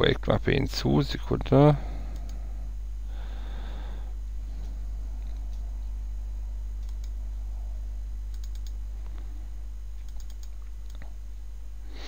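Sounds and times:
steady low hum: 0.0 - 12.0
computer mouse clicking: 2.1 - 2.4, 6.8 - 7.2, 8.3 - 8.8, 10.0 - 11.1.

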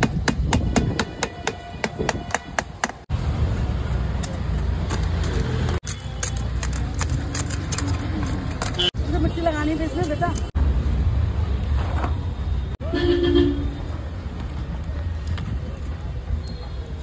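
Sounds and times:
rod knocking packing: 4.2 - 8.9.

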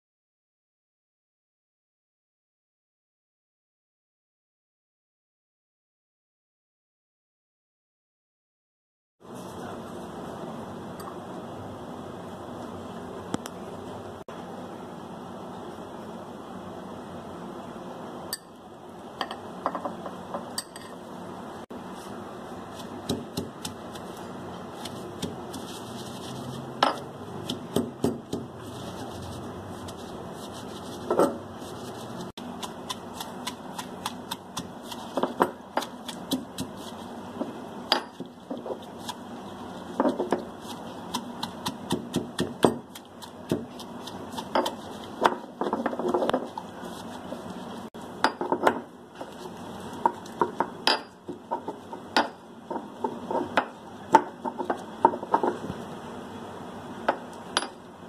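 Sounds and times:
pestle pounding in stone mortar: 22.8 - 25.8, 26.8 - 28.6, 32.4 - 39.2, 39.9 - 46.7.

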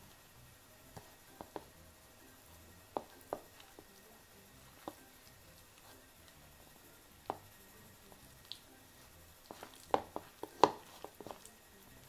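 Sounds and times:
utensil stirring in a bowl: 2.5 - 12.0.

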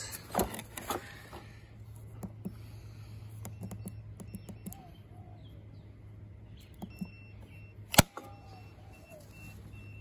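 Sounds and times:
keypad buttons clicking: 3.4 - 4.8, 6.6 - 7.2
bird chirping: 3.5 - 10.0.

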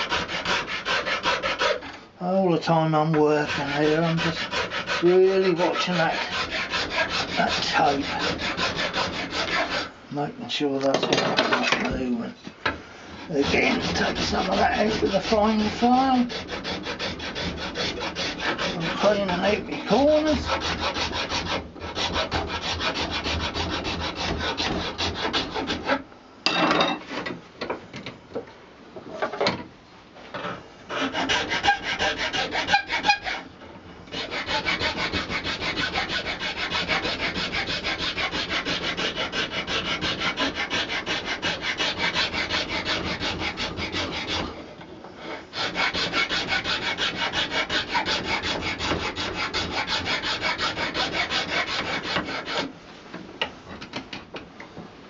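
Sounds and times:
file rasping on horn: 0.0 - 2.0, 3.2 - 9.9, 13.1 - 26.0, 30.9 - 33.5, 34.1 - 44.6, 45.2 - 52.7.

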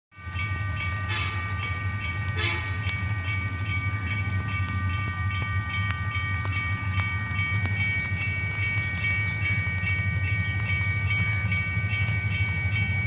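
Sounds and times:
locomotive engine rumble: 0.2 - 13.0.

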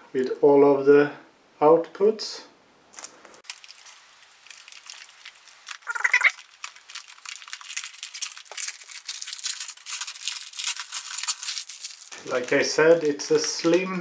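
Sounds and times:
plastic bag crinkling: 2.9 - 14.0.

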